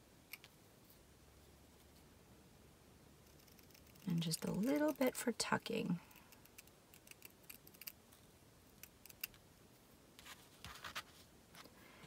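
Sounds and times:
scissors snipping fabric: 0:04.6 - 0:05.0.

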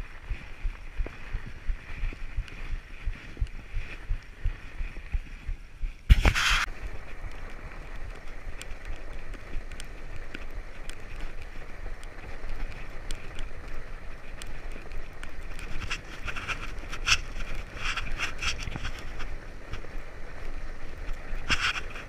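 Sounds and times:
bike tyres rolling on snow: 0:00.0 - 0:22.0
wind on microphone: 0:00.0 - 0:22.0
crisp clicks and crunches: 0:06.1 - 0:22.0.

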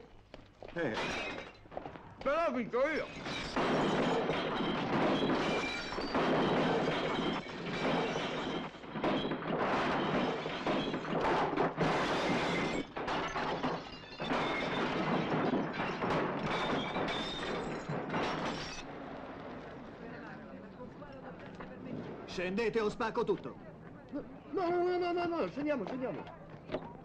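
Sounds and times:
glass shattering: 0:00.8 - 0:01.8, 0:02.8 - 0:18.9
wooden furniture crashing: 0:03.1 - 0:18.9.

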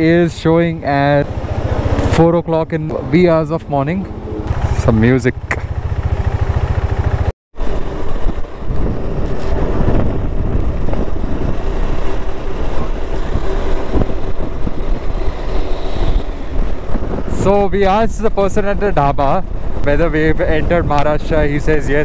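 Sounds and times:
road noise: 0:00.0 - 0:22.0
motorcycle engine running: 0:00.7 - 0:02.4, 0:03.6 - 0:17.1
wind on microphone: 0:07.6 - 0:22.0.

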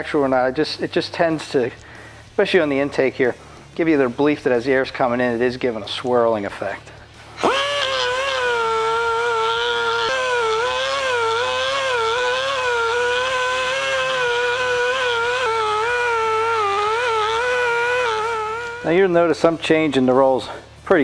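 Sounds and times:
die grinder whining: 0:07.3 - 0:19.3.

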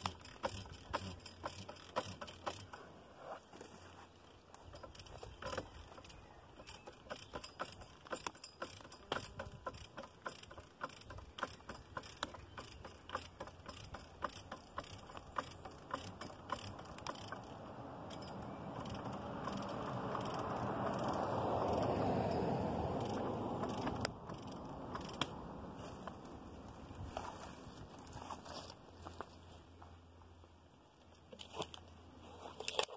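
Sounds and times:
ratchet pawl clicking: 0:00.0 - 0:02.9, 0:04.6 - 0:25.4.

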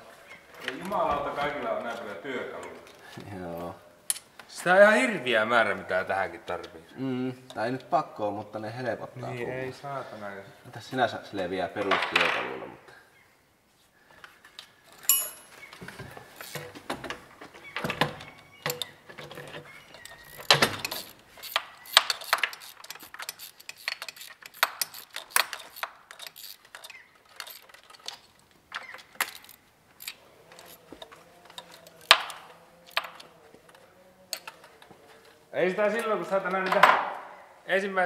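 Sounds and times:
hand tools clinking on metal: 0:14.9 - 0:15.7, 0:18.2 - 0:33.3.

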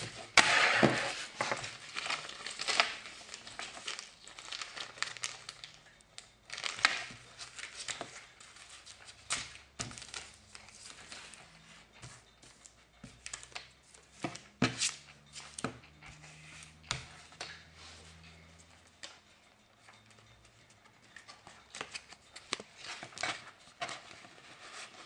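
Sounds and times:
plastic packaging crinkling: 0:00.0 - 0:11.4.

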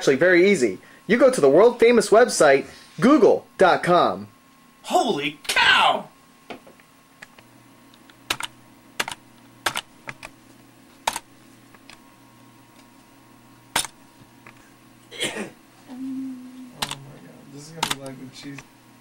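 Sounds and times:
steady low hum: 0:00.0 - 0:19.0
keyboard keystrokes: 0:08.3 - 0:10.3, 0:17.8 - 0:18.2.

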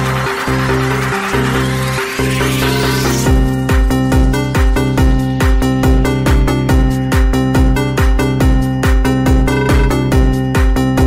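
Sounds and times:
electronic dance music: 0:09.5 - 0:10.2.

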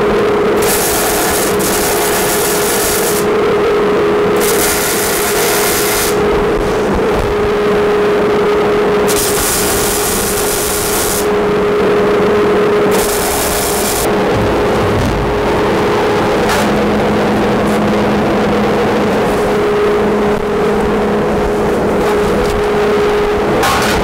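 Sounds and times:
welding arc hissing: 0:00.6 - 0:03.3, 0:04.4 - 0:06.2, 0:09.1 - 0:11.3, 0:12.9 - 0:14.1
motor hum: 0:12.9 - 0:17.8.

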